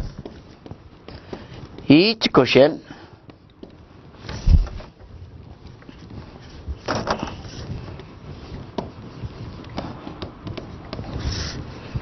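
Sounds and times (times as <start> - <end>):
marker pen writing on whiteboard: 7.2 - 12.0.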